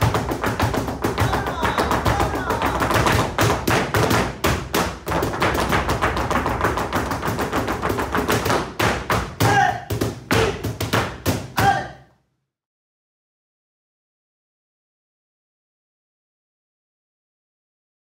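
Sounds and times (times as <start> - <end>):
shoes tapping on floor: 0.0 - 11.8
flamenco music: 0.0 - 11.9.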